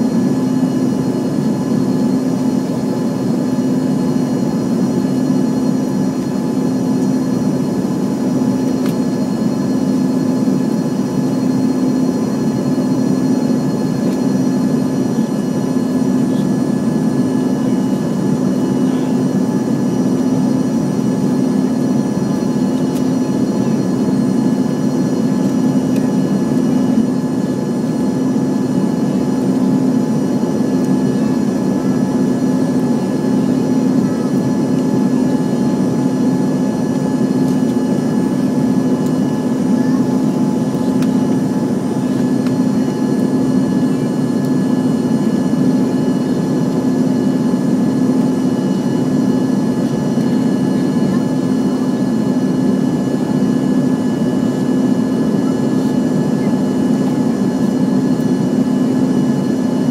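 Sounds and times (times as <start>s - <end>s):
faint high engine whines: 0.0s - 59.9s
jet engines droning in cabin: 0.0s - 59.9s.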